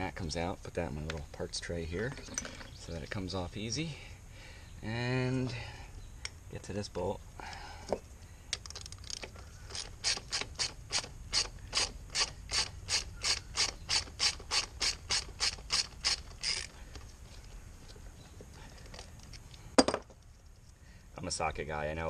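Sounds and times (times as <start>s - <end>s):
socket ratchet wrench clicking: 8.6s - 16.7s.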